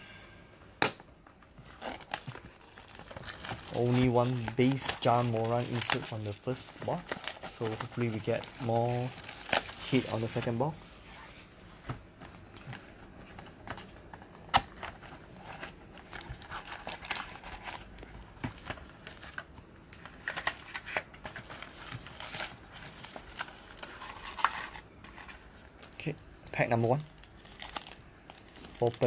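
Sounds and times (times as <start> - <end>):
foil wrappers crinkling: 1.6 - 10.8, 15.4 - 29.0.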